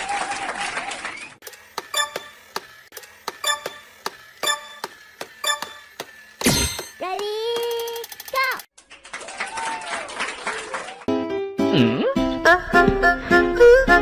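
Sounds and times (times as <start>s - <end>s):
clock-like ticking: 1.8s - 6.1s.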